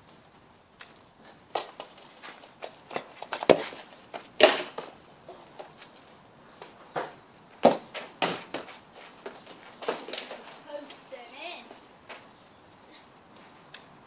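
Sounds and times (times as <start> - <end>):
football thuds and scuffs: 1.5 - 5.8, 6.6 - 10.6.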